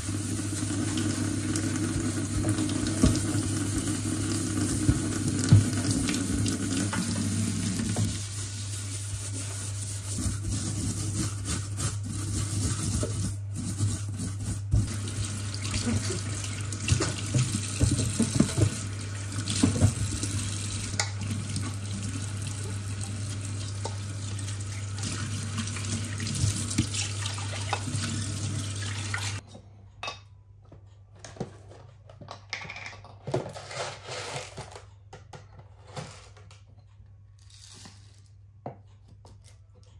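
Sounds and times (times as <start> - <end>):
tap running into metal sink: 4.6 - 8.2, 16.7 - 21.8.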